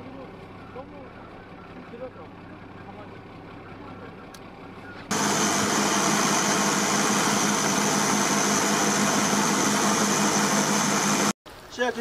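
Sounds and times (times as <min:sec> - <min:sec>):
boat engine drone: 0:00.2 - 0:11.4
rushing boat wake: 0:05.1 - 0:11.4.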